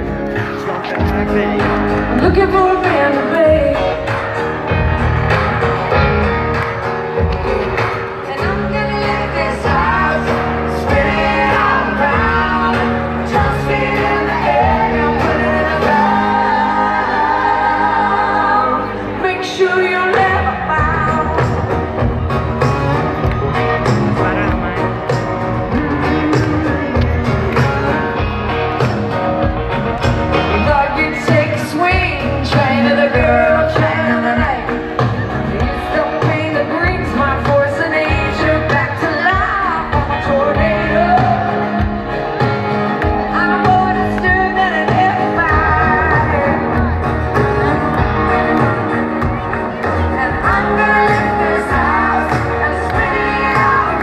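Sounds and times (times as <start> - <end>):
live country band: 0.0 - 54.0
sustained bass notes: 0.0 - 54.0
woman singing: 2.1 - 4.2, 8.2 - 21.7, 30.6 - 42.0, 43.1 - 47.0, 50.0 - 54.0.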